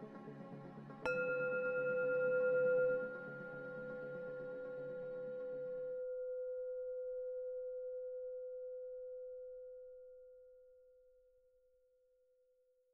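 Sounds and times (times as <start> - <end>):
background music: 0.0 - 5.8
bell-like ringing tone: 1.1 - 9.6.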